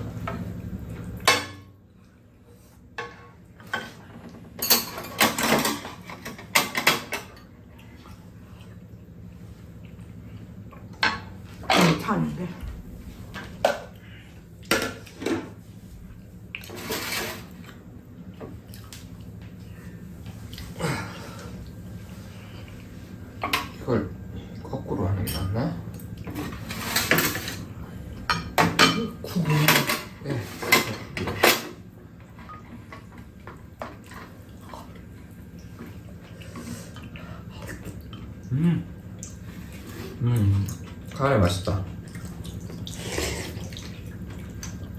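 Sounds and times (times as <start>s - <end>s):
utensils clinking on ceramic bowls: 4.6s - 7.5s
soft slurping: 42.1s - 44.9s.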